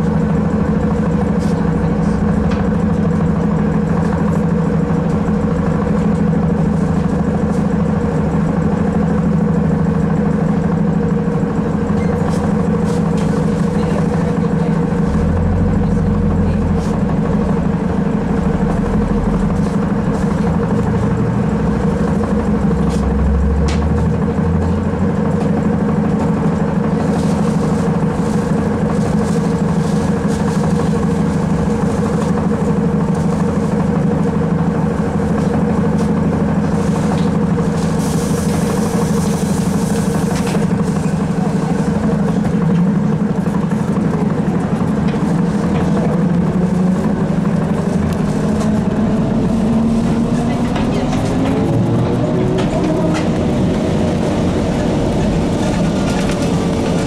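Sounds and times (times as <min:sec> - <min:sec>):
trolleybus hum: 0:00.0 - 0:57.0
vehicle running noise: 0:00.0 - 0:57.0.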